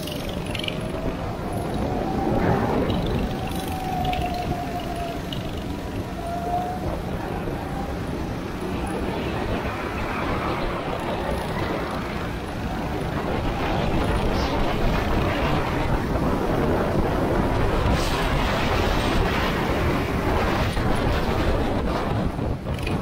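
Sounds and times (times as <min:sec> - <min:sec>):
go-kart engine running: 0:00.0 - 0:18.1.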